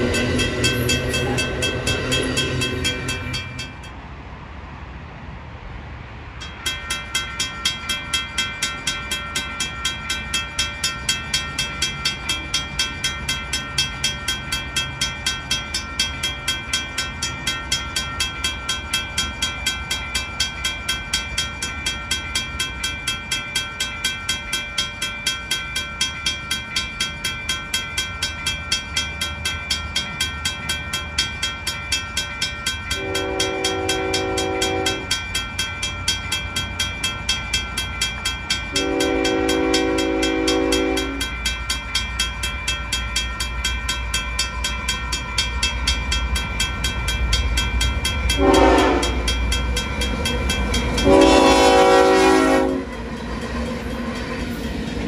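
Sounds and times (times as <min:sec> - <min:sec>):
grade-crossing bell ringing: 0:00.0 - 0:04.1, 0:06.3 - 0:55.0
train rumbling: 0:00.0 - 0:55.0
locomotive horn: 0:33.0 - 0:35.1, 0:38.7 - 0:41.2, 0:48.4 - 0:49.3, 0:51.0 - 0:53.0.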